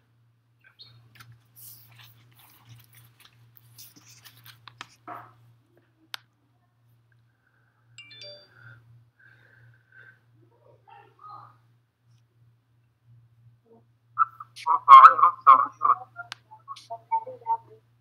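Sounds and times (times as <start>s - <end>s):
low steady hum: 0.0s - 18.0s
electronic chime: 8.0s - 8.8s.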